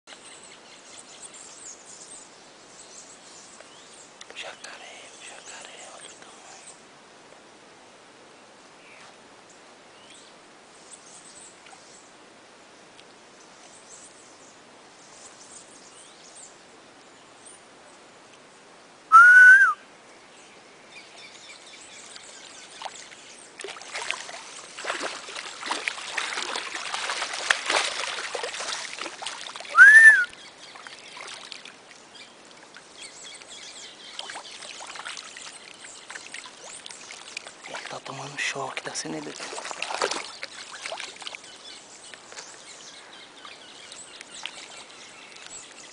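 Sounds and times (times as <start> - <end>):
loud short whistles: 19.1 - 19.8, 29.7 - 30.3
water splashing and churning: 22.0 - 42.7, 43.4 - 45.9.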